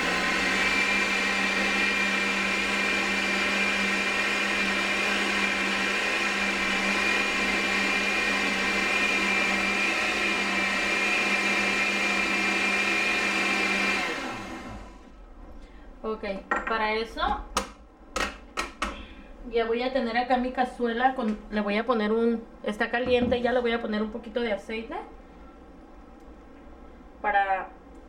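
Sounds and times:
blender running: 0:00.0 - 0:15.2.

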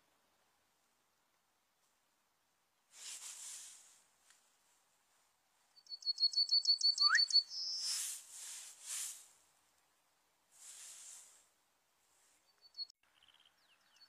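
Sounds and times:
hiss: 0:02.9 - 0:04.0, 0:07.8 - 0:09.4, 0:10.6 - 0:11.5
bird singing: 0:05.7 - 0:08.0, 0:12.4 - 0:14.0.

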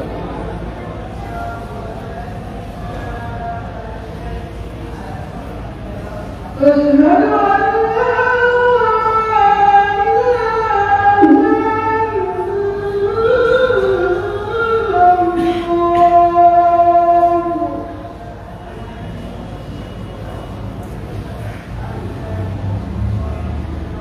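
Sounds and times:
person singing unaccompanied: 0:06.6 - 0:18.2.

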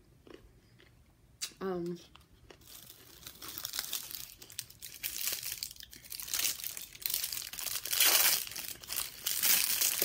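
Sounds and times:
food wrapping crinkling: 0:02.2 - 0:10.0.

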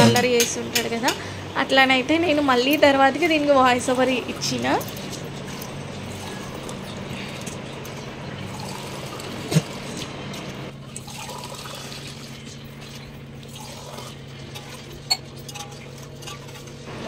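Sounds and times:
water pouring into a pot: 0:04.3 - 0:16.8.

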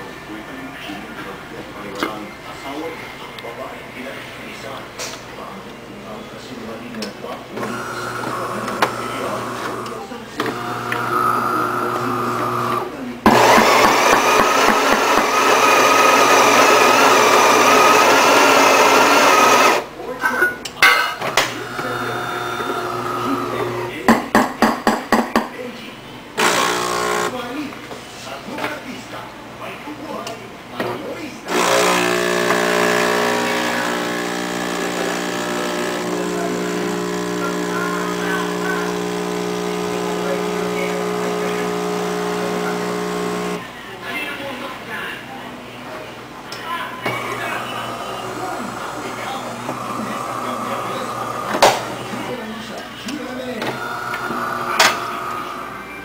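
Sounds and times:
espresso machine motor whine: 0:07.6 - 0:19.9, 0:21.4 - 0:24.0, 0:26.4 - 0:27.3, 0:31.5 - 0:43.6, 0:47.1 - 0:52.4, 0:53.8 - 0:55.8
espresso machine whirring hiss: 0:07.6 - 0:19.9, 0:21.5 - 0:24.0, 0:26.4 - 0:27.3, 0:31.5 - 0:43.6, 0:47.1 - 0:52.3, 0:53.8 - 0:55.8.

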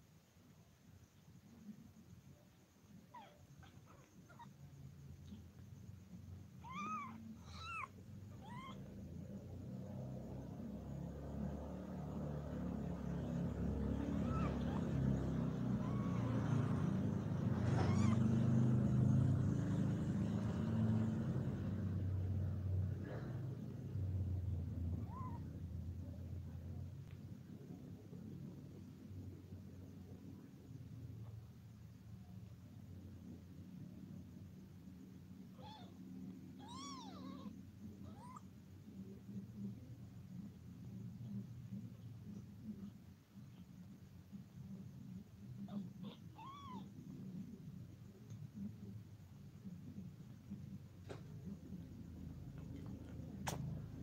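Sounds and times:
cat purring: 0:01.2 - 0:54.0
kitten mewing: 0:06.5 - 0:09.2, 0:13.1 - 0:19.1, 0:24.9 - 0:25.5, 0:35.5 - 0:39.1, 0:45.6 - 0:47.1.

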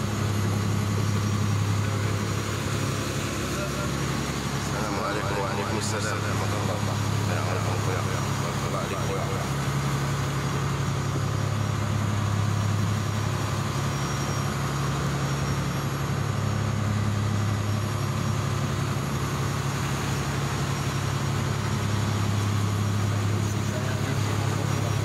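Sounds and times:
boat engine drone: 0:00.0 - 0:25.0
water churning along hull: 0:00.0 - 0:25.0.

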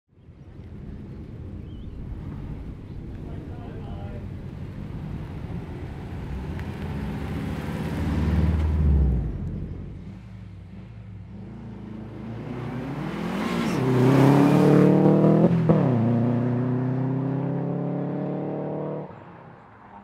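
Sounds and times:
rally car engine accelerating: 0:04.9 - 0:19.2.

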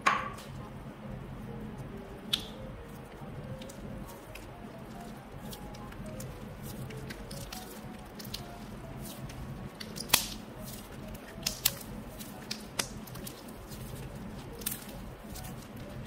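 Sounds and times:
slime sticky crackles: 0:01.7 - 0:16.0
slime popping: 0:03.6 - 0:15.8.

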